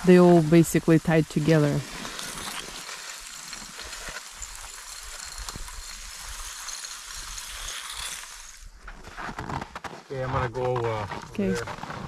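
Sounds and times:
net sliding into slushy water: 0.1 - 10.2.

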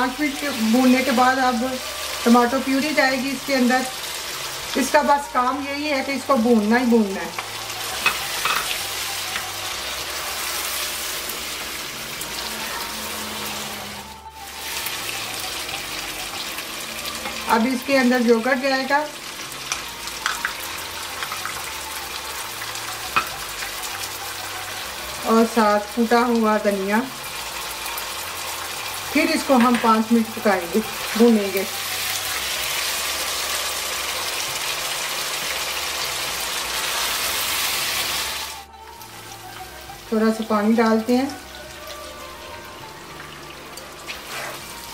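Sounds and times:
meat sizzling in a frying pan: 0.0 - 44.9
spatula stirring in a pan: 44.0 - 44.9.

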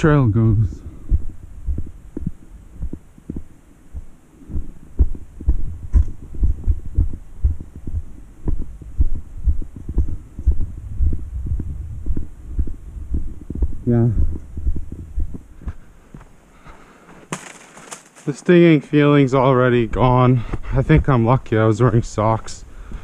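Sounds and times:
low rumble: 0.0 - 15.5
footsteps on dirt trail: 1.1 - 8.7, 11.1 - 18.7.

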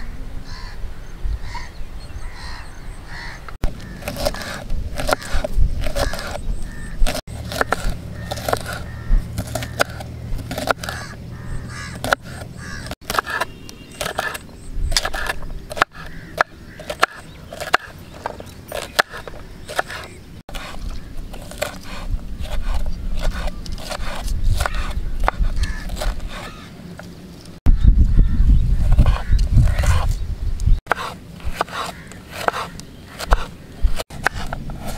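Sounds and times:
knife chopping on wooden board: 3.6 - 6.4, 7.0 - 11.1, 11.9 - 20.8, 21.4 - 26.6, 30.9 - 34.9.

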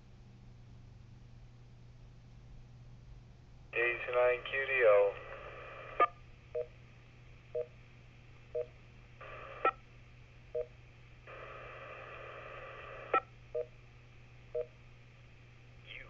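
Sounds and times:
radio static hiss bursts: 3.8 - 6.1, 9.2 - 9.8, 11.3 - 13.2.

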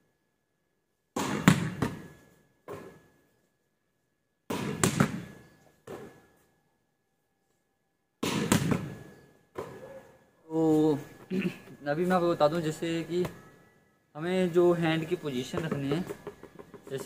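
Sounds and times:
volleyball slapping off wall: 4.5 - 5.3, 8.2 - 9.0.

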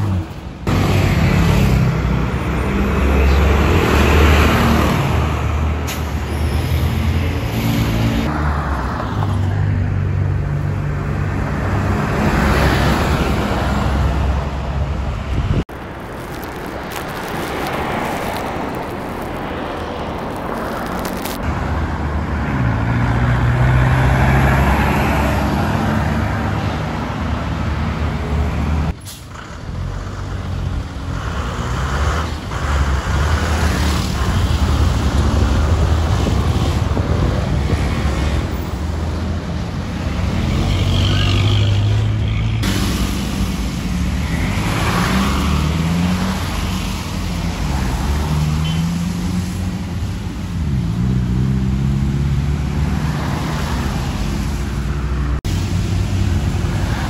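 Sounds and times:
road traffic: 0.0 - 57.0
bus pulling away: 20.9 - 57.0.

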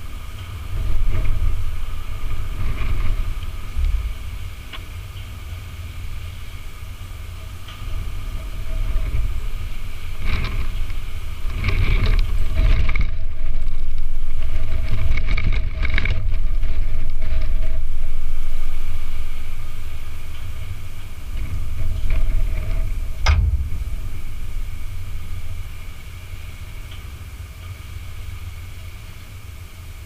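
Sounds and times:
engine rumbling: 0.0 - 30.0
knocks and rattles: 21.3 - 27.8.

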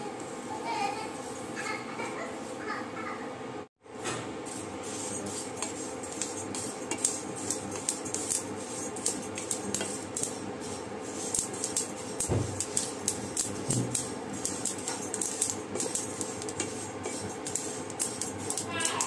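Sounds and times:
spatula stirring seeds in a pan: 4.3 - 19.0
steady hum: 4.3 - 19.0.

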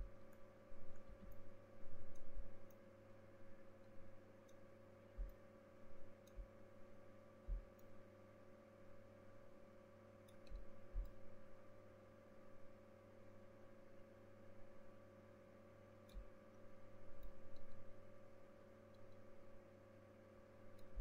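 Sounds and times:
faint electrical hum: 0.0 - 21.0
soft low thumps: 5.2 - 5.4, 7.5 - 7.8, 10.5 - 11.3.

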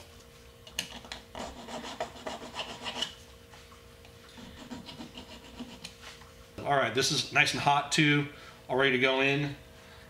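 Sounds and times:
hand file scraping metal: 1.3 - 3.2, 4.3 - 6.0.

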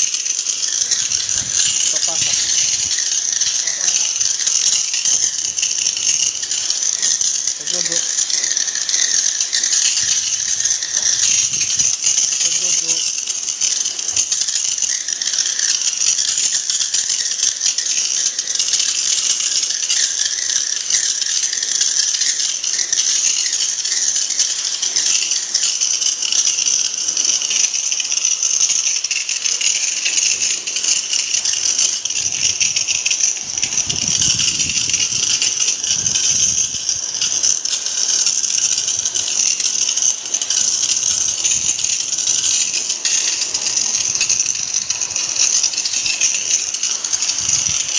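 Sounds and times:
pressure washer spray hissing: 0.0 - 47.9
water splattering: 0.0 - 47.9.

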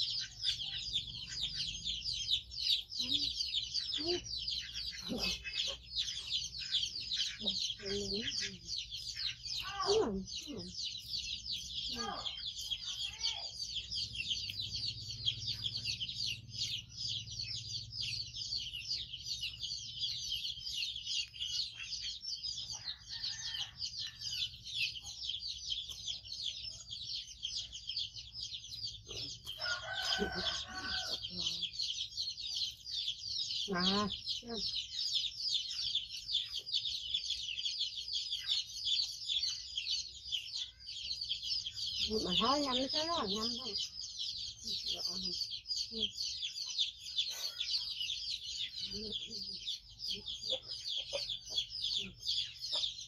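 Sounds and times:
high-pitched bird chirping chorus: 0.0 - 53.0
crowing-like bird call: 29.5 - 31.3.

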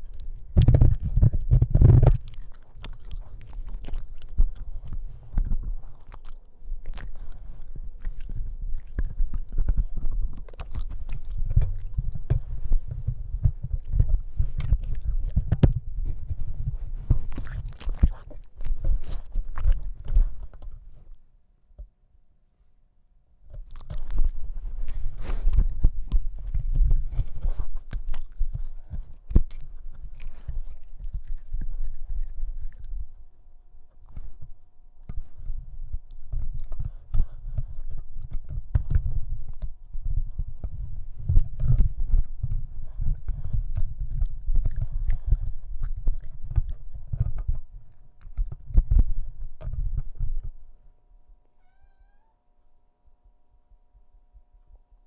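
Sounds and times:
puppy chewing on cord: 0.0 - 21.2, 23.5 - 50.6.

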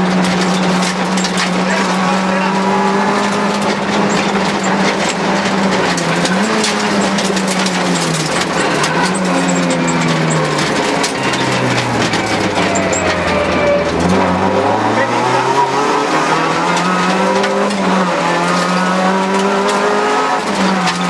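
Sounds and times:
gravel hitting car: 0.0 - 14.4
car engine from inside cabin: 0.0 - 21.0.

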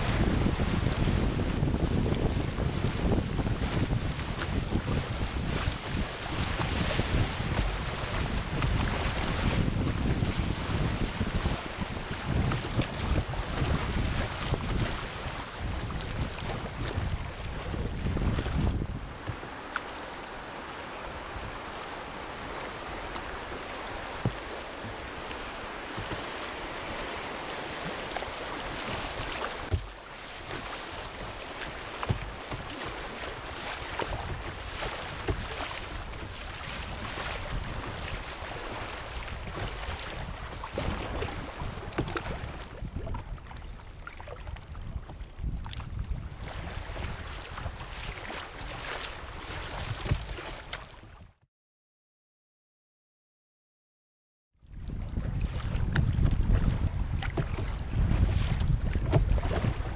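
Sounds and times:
river water rushing and splashing: 0.0 - 51.1, 55.2 - 59.9
sharp knocks on kayak: 24.2 - 25.0, 25.8 - 26.4, 28.8 - 30.7, 31.6 - 32.8, 41.9 - 42.5, 49.9 - 50.8, 55.9 - 59.9.

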